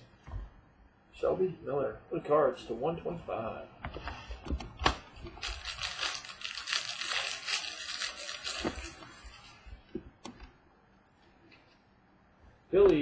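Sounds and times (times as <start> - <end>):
wrapper crinkling: 5.2 - 9.7.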